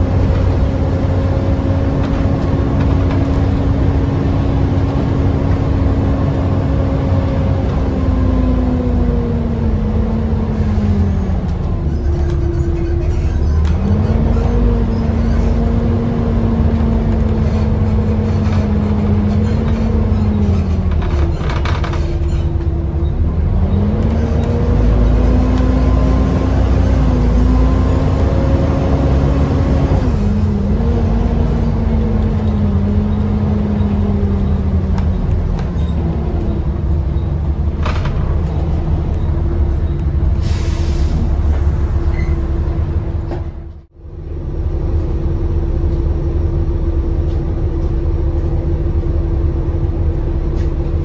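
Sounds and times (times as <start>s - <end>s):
bus engine rumble with whine: 0.0s - 51.0s
short air hisses: 40.4s - 41.3s.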